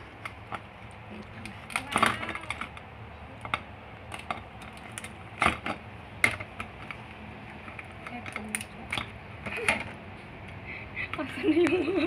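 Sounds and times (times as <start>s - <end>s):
lobster shell cracking: 4.1s - 5.6s, 7.8s - 9.1s.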